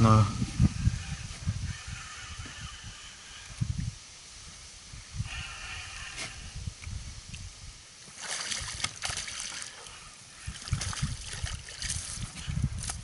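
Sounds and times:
wind rumble on microphone: 0:00.0 - 0:13.0
water splashing by a boat: 0:08.0 - 0:13.0.

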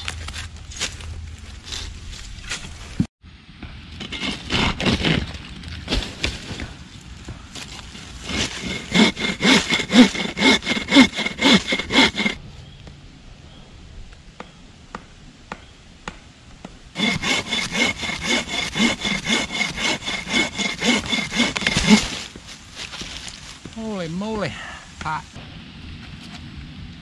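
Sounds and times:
saw cutting through log: 0:04.0 - 0:05.3, 0:08.0 - 0:12.4, 0:17.0 - 0:22.3.

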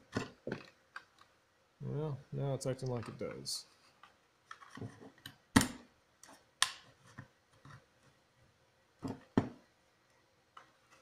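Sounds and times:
plastic clicks and snaps: 0:04.5 - 0:06.9.

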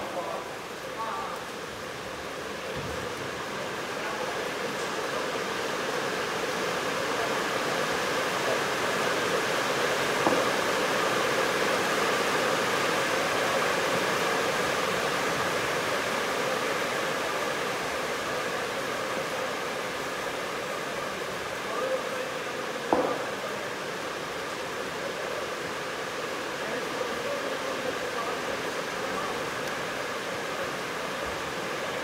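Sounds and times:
hiss-like background noise: 0:00.0 - 0:32.0
sharp knock: 0:10.2 - 0:10.5, 0:22.9 - 0:23.3.

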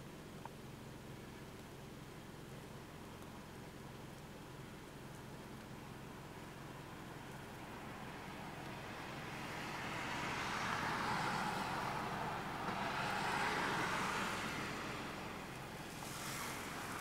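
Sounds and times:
passing vehicle rushing: 0:07.6 - 0:17.0.

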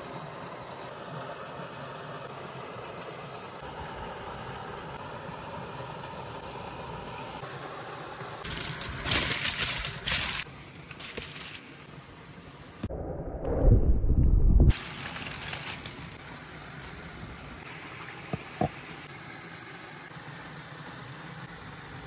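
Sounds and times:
stream and waterfall rushing: 0:00.0 - 0:10.8, 0:14.7 - 0:22.0
aluminium foil crinkling: 0:08.4 - 0:11.8, 0:15.0 - 0:16.2.

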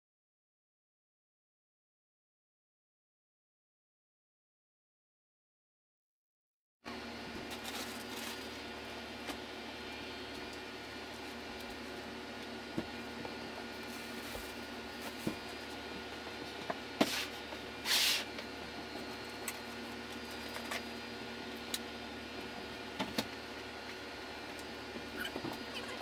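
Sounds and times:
steady room hum: 0:06.9 - 0:26.0.

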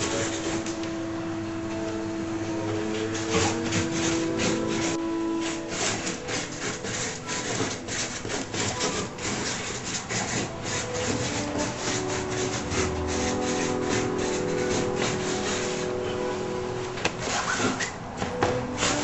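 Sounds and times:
felt-tip marker scratching on paper: 0:03.3 - 0:15.9.

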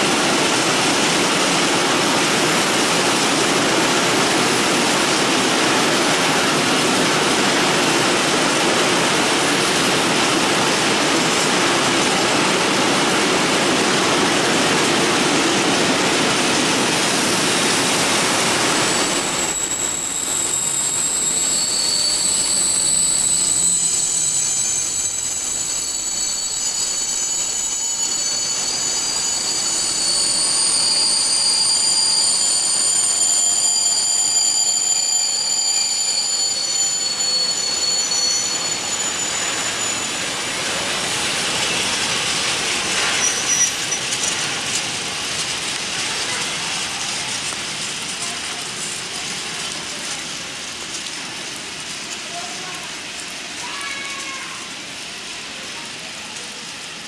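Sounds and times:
freight train rumble and clatter: 0:00.0 - 0:57.0
high-pitched wheel squeals: 0:17.1 - 0:44.8.

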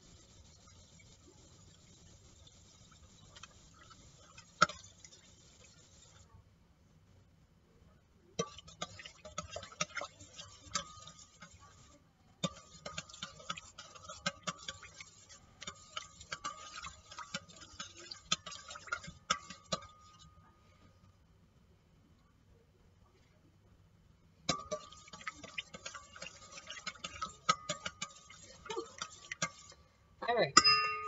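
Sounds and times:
faint steady ring: 0:08.4 - 0:21.2, 0:24.4 - 0:31.0
spoon clinking in steel bowl: 0:24.5 - 0:29.6, 0:30.6 - 0:31.0.

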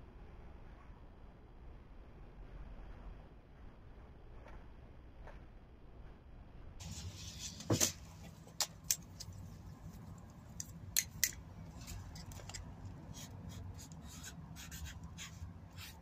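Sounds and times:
plastic labels clicking: 0:10.2 - 0:13.1
marker pen scratching: 0:11.1 - 0:16.0.

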